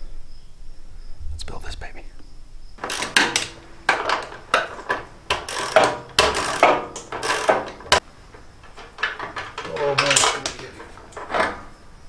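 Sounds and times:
ratchet wrench clicking: 2.8 - 8.0
metal tool clatter: 2.8 - 11.8.

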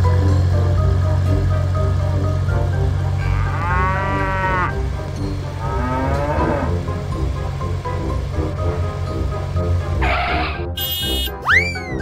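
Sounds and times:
background music with bass: 0.0 - 12.0
cow mooing: 3.1 - 4.9, 5.6 - 6.9, 10.0 - 10.7.

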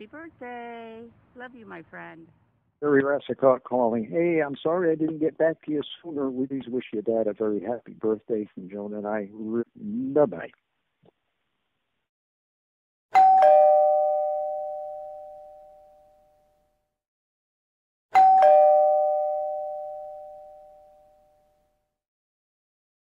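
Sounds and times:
two-note doorbell chime: 13.1 - 16.7, 18.1 - 21.8.

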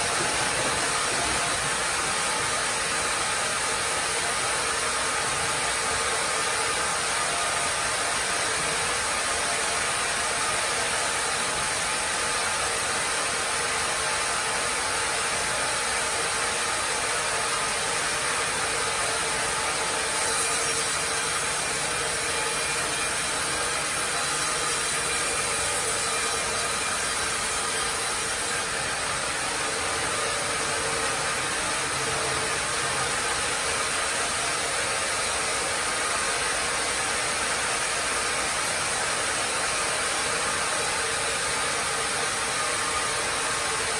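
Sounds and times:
saw blade cutting log: 19.6 - 34.6.

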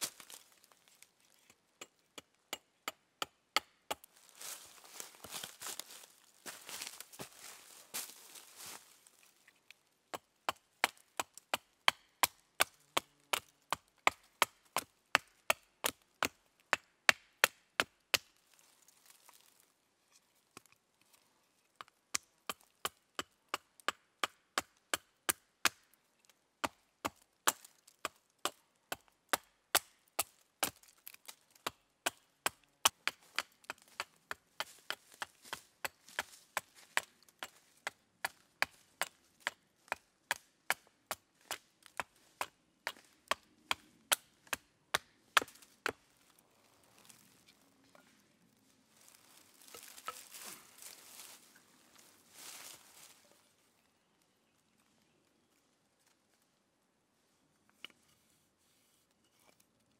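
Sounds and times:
hatchet chopping wood: 1.8 - 4.1, 10.1 - 18.3, 21.8 - 25.9, 26.6 - 46.0.

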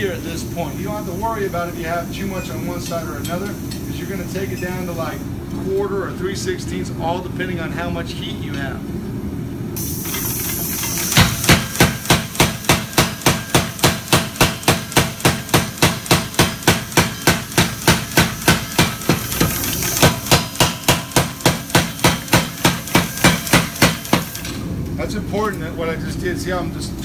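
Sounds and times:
steady hiss: 0.0 - 5.4
power hammer striking hot steel: 10.0 - 24.5.

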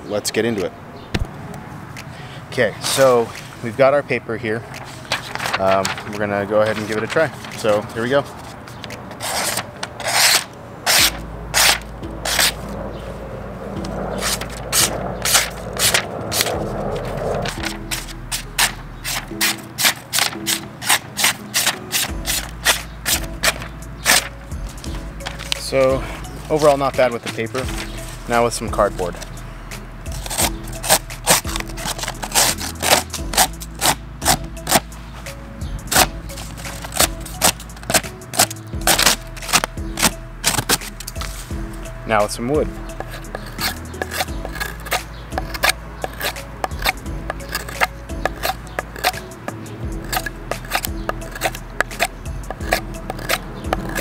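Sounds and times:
knife slicing paper: 4.8 - 12.6, 14.2 - 24.3, 30.2 - 34.9, 35.9 - 41.5, 43.0 - 49.2, 50.0 - 54.0.

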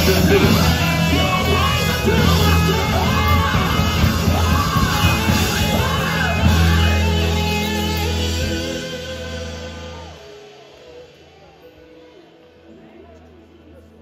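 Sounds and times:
singer shouting and singing: 0.0 - 11.1
gospel band playing: 0.0 - 14.0.

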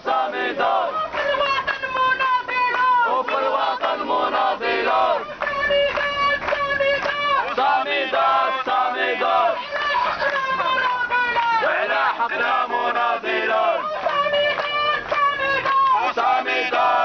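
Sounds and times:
crowd chanting slogans: 0.0 - 17.0.

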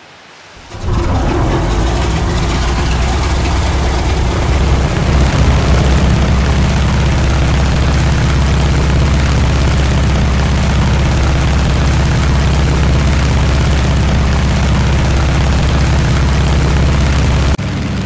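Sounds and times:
propeller plane engines droning: 0.6 - 18.0.

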